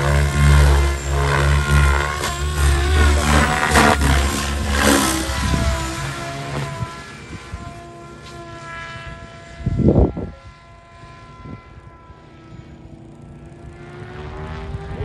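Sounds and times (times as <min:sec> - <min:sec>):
rc helicopter rotor whine: 0:00.0 - 0:15.0.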